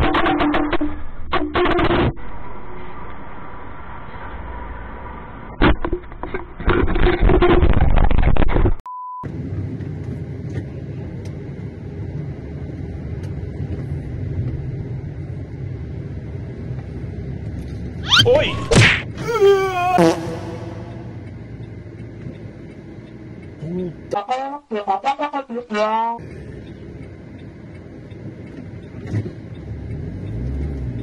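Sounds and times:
car road and engine hum: 9.3s - 24.1s, 26.2s - 31.0s
cries sliding down in pitch: 19.2s - 21.2s.

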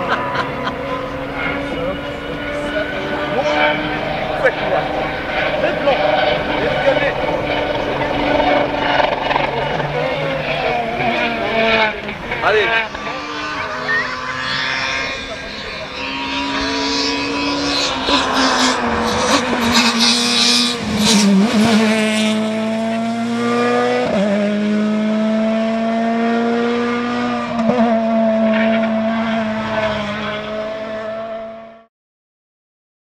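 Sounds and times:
exhaust crackling: 0.0s - 25.2s
rally car engine at full throttle: 0.0s - 31.9s.

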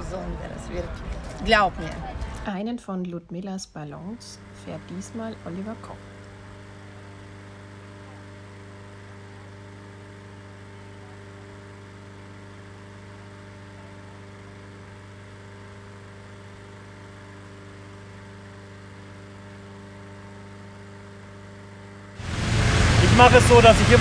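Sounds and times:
inflator fan engine hum: 0.0s - 2.5s, 3.8s - 24.0s.

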